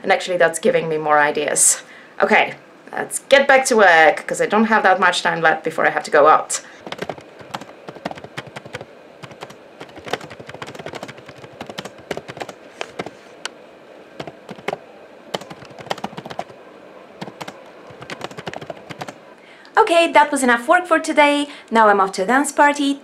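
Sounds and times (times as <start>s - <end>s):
laptop keyboard typing: 6.8s - 13.2s, 14.2s - 16.6s, 17.2s - 19.2s.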